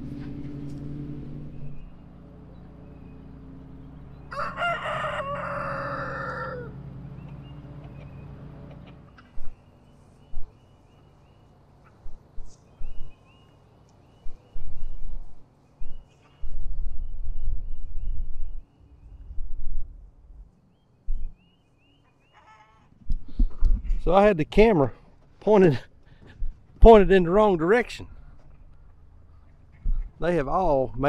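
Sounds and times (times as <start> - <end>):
tractor engine running: 0.0 - 4.3, 6.7 - 9.6
rooster crowing: 4.2 - 6.8.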